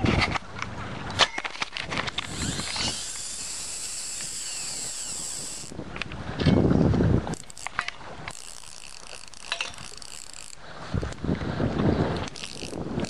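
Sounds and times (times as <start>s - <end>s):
line whirring off spool: 2.0s - 5.8s, 7.3s - 11.2s, 12.2s - 13.0s
fishing reel clicks: 2.1s - 5.8s, 7.3s - 11.2s, 12.2s - 13.0s.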